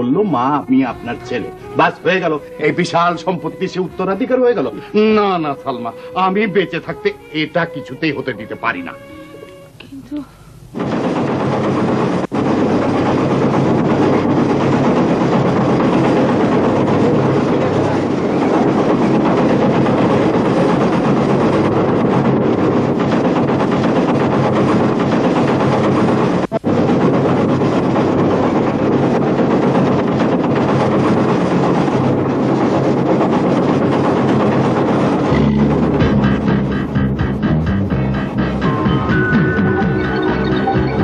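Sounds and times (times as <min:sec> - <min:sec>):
factory machinery running: 0:00.0 - 0:41.0
low hum: 0:09.1 - 0:41.0.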